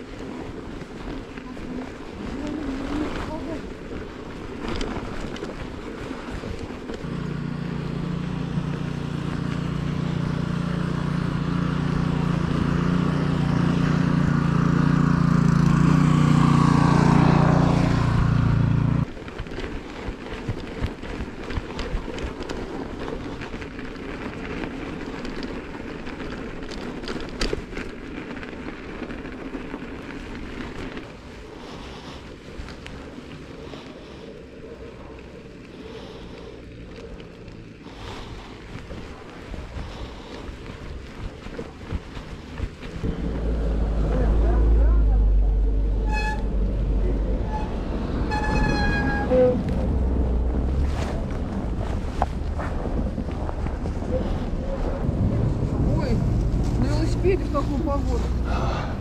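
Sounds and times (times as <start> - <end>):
vehicle engine drone: 0.0 - 59.0
wind noise on microphone: 38.0 - 59.0.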